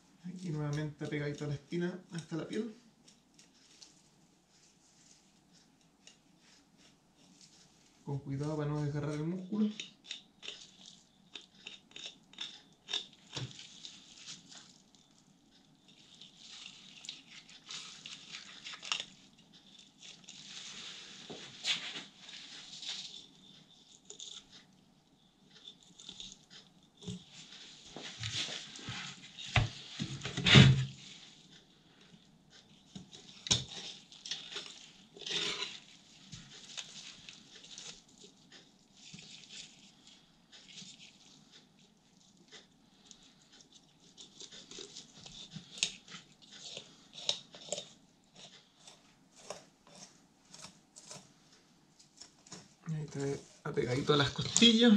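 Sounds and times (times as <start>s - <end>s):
knife scraping fish bones: 9.8s - 14.5s, 33.1s - 38.1s, 44.0s - 51.3s.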